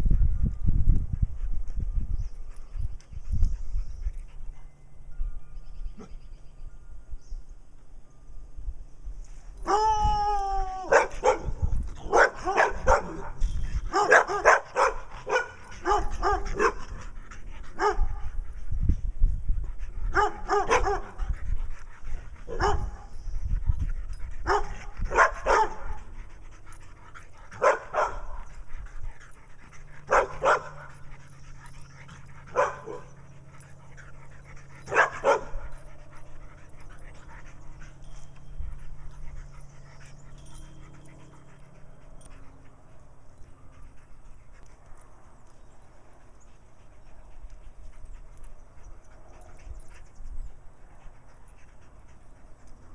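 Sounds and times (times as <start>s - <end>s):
dog barking: 10.9s - 11.5s, 12.1s - 13.3s, 14.0s - 16.8s, 20.2s - 21.1s, 22.5s - 22.8s, 24.5s - 25.8s, 27.6s - 28.2s, 30.1s - 30.8s, 34.9s - 35.5s.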